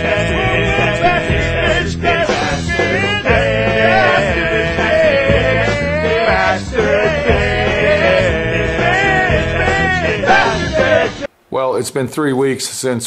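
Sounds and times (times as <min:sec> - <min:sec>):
song with singing and band: 0:00.0 - 0:11.3.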